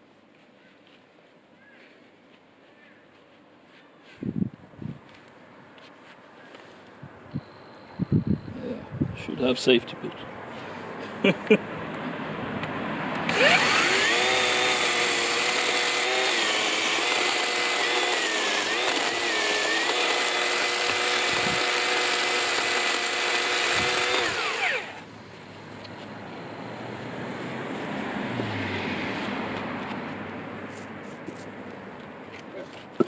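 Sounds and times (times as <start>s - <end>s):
electric chainsaw cutting log: 13.2s - 25.1s.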